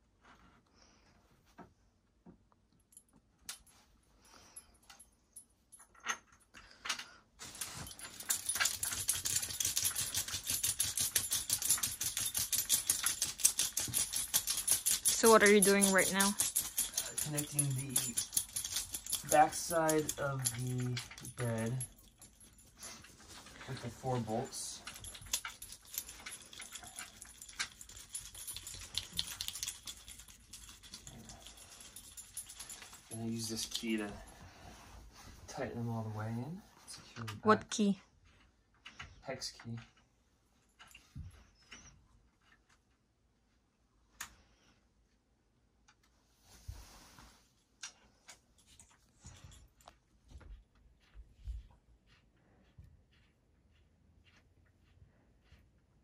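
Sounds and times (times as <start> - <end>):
metal hardware clicking and rattling: 5.7 - 34.3.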